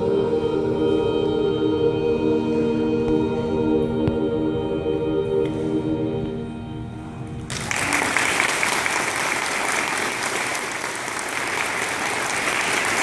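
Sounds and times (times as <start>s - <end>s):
audience applauding: 7.5s - 13.0s.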